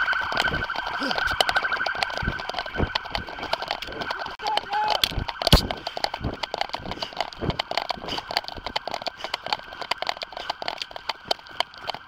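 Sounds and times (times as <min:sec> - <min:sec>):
camera rubbing against clothing: 0:05.0 - 0:12.0.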